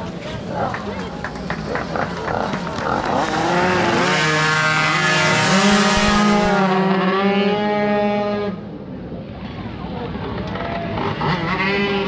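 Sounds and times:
moped engine revving high: 1.9 - 8.4.

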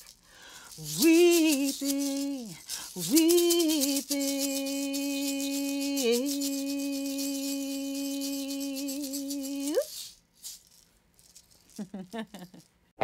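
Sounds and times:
hand rattles shaking: 0.0 - 12.8
woman singing long note: 0.8 - 9.9.

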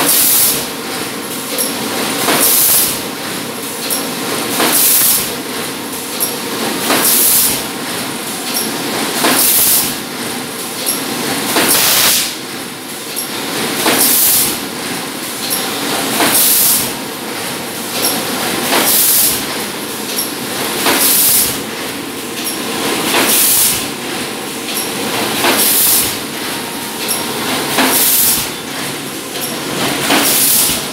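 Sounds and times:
steady machine noise: 0.0 - 30.9.

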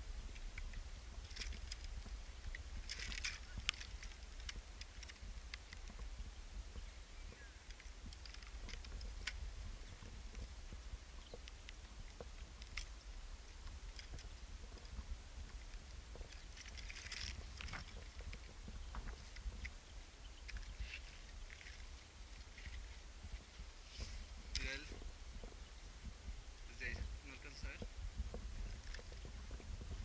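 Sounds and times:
wind buffeting microphone: 0.0 - 30.0
clicks and crunches of rock: 0.2 - 6.1, 7.3 - 30.0
scraping crunch on rock: 13.6 - 19.8.

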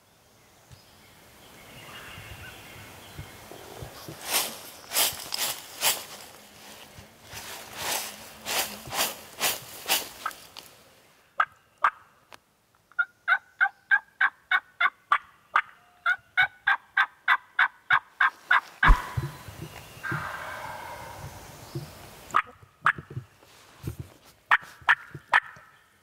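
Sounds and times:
turkey call yelps: 20.0 - 23.0.

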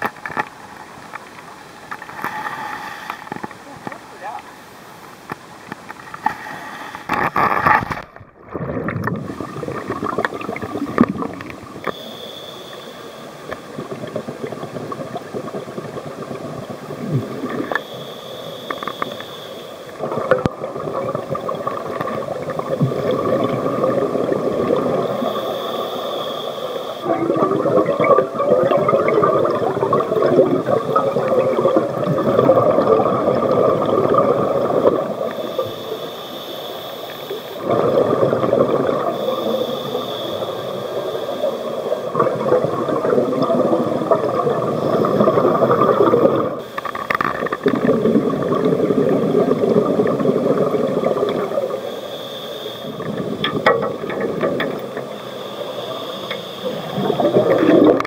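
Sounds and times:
hissing regulator inhalations: 2.0 - 4.0, 6.1 - 7.4, 11.4 - 13.8, 17.6 - 20.0, 22.9 - 27.7, 34.5 - 42.3, 44.7 - 47.8, 51.3 - 53.4, 54.8 - 58.0
bubbling exhalations underwater: 7.1 - 12.0, 13.6 - 17.8, 20.0 - 25.5, 27.0 - 35.8, 37.6 - 51.9, 56.7 - 58.0.

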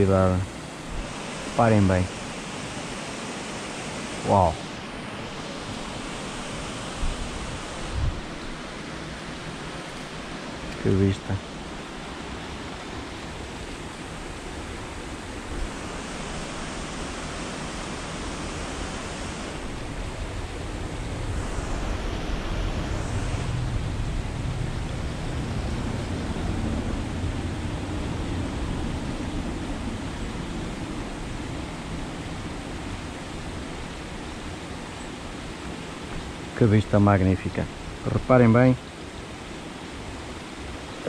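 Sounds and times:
wind blowing on microphone: 4.1 - 8.7, 12.2 - 38.6.

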